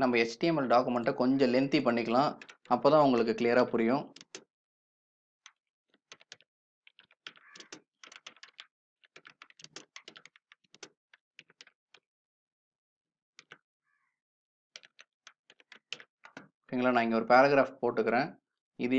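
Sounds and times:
typing on keyboard: 1.9 - 4.5, 5.5 - 12.1, 13.4 - 13.6, 14.8 - 17.0.

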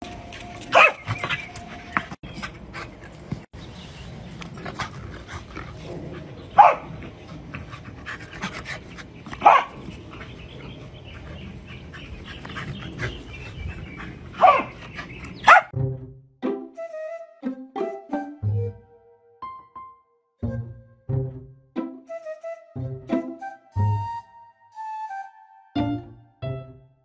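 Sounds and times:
dog barking: 0.7 - 1.3, 6.6 - 6.9, 9.4 - 9.8, 14.4 - 14.7, 15.4 - 15.7
dog panting: 0.8 - 3.5, 4.4 - 15.7.

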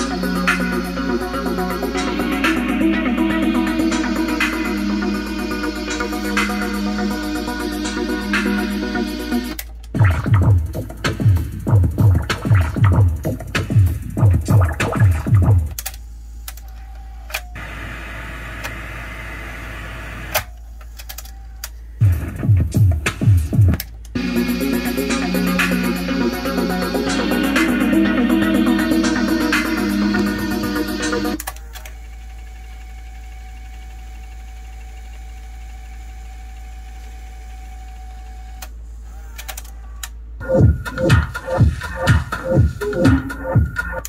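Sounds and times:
car stereo music: 0.0 - 15.8, 17.5 - 20.3, 22.0 - 31.4, 40.4 - 44.0
radio static hiss: 17.6 - 20.4.

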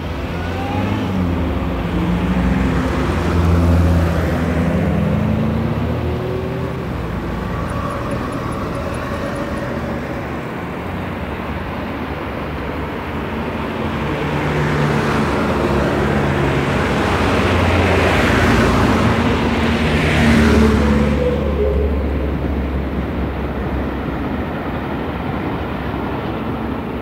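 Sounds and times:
vehicle passing close: 0.0 - 12.3
road traffic rumble: 0.0 - 27.0.

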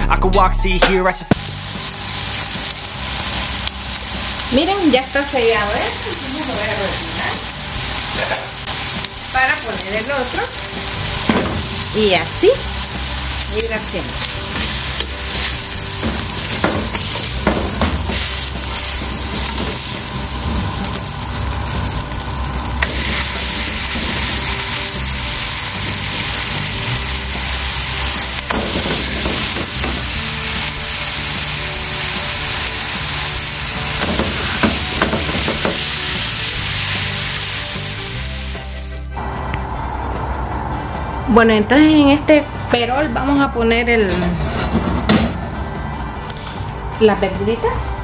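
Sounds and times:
steaks sizzling in frying pan: 1.3 - 39.1.

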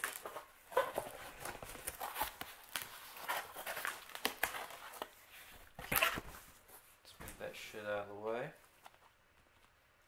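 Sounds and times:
packaging rustling and crinkling: 0.0 - 6.8.

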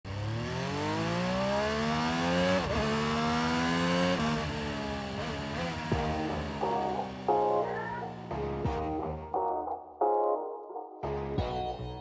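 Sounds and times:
scooter engine accelerating: 0.1 - 8.7.

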